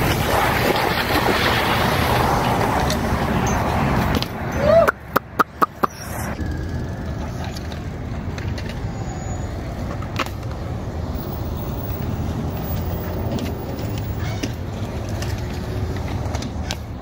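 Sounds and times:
bike tyres rolling on concrete: 0.0 - 17.0
sharp clicks: 4.9 - 6.4.

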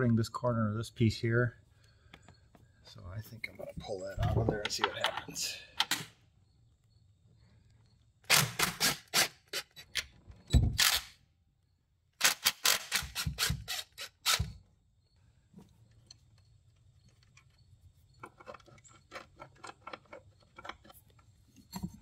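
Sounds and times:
impact driver rapid clicking: 12.2 - 14.5.

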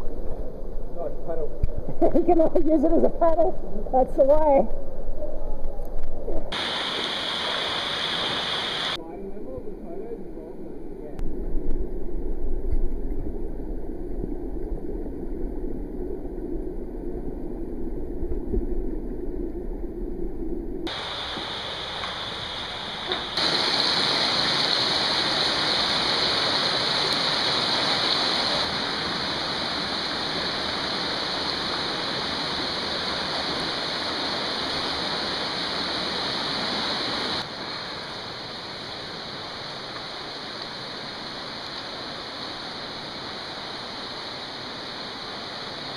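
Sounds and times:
rushing creek water: 6.5 - 9.0, 20.9 - 45.9.

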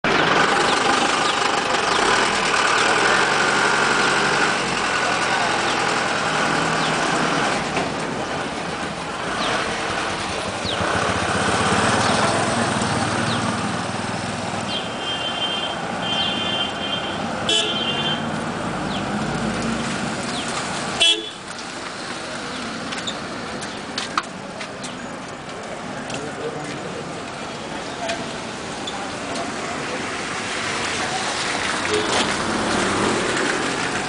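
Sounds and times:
street traffic: 0.0 - 34.0
vehicle horn toots: 14.7 - 18.3, 21.0 - 21.4.

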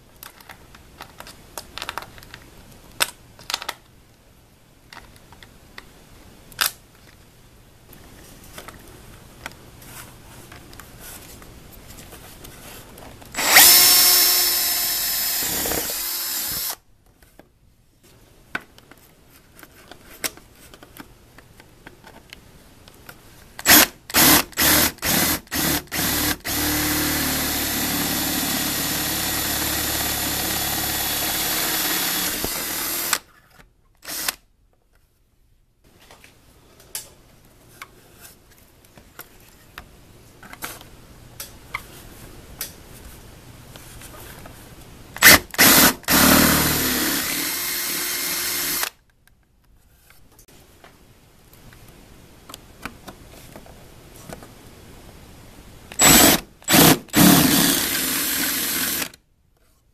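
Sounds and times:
cordless drill boring metal: 13.4 - 16.8, 23.7 - 33.2, 45.2 - 48.9, 56.0 - 59.1.

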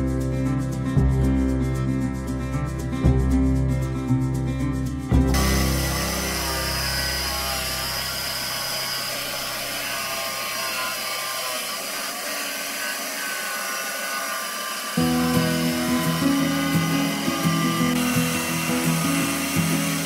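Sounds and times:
jigsaw cutting wood: 5.3 - 20.0.

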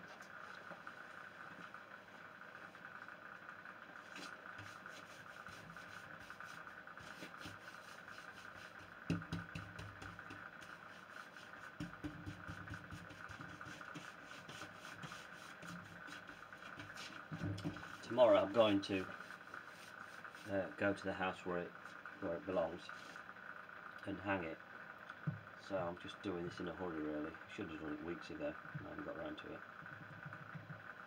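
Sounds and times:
faint steady hum: 0.0 - 31.0
cloth buffing wood scuffs: 4.1 - 20.6.

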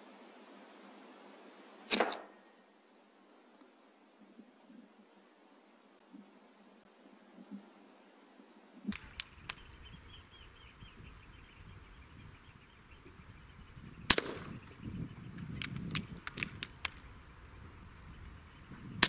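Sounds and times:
air rifle shot: 1.9 - 2.4, 14.0 - 14.9
light clicks: 8.9 - 9.8, 15.3 - 17.1.

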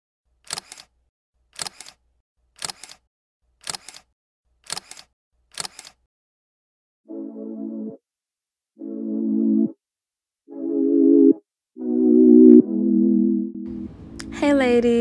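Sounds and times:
camera shutter double click: 0.5 - 0.9, 4.7 - 6.0
synthesizer chord sliding down: 7.1 - 8.0, 8.8 - 9.8, 10.5 - 13.9.

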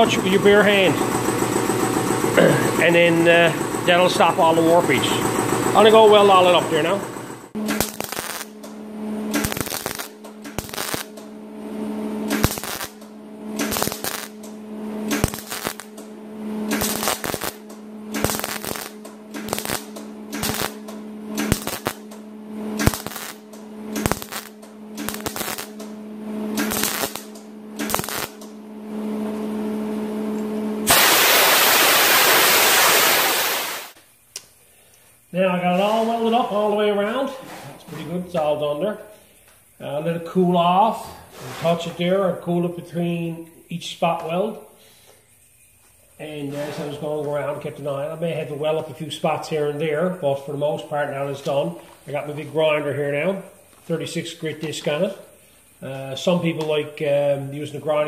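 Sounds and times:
steady low hum: 0.0 - 58.0
spot welds crackling: 2.8 - 29.4, 30.9 - 34.6, 35.3 - 37.3
air blow-off gun hissing: 12.3 - 14.5, 15.1 - 16.0, 16.7 - 22.2, 22.8 - 28.5, 30.9 - 34.0.

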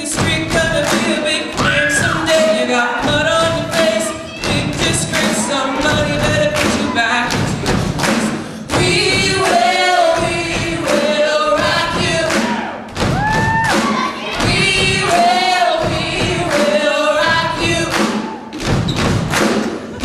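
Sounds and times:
amplified lead voice singing: 0.0 - 7.7
heavy thumping beats: 0.0 - 20.0
chorus of voices singing: 0.4 - 12.9, 13.9 - 18.6.

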